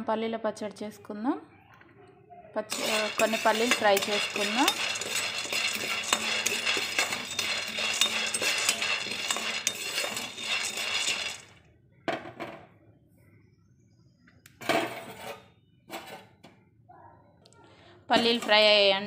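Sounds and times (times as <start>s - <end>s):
peanuts rattling in a frying pan: 2.7s - 11.6s, 18.1s - 19.0s.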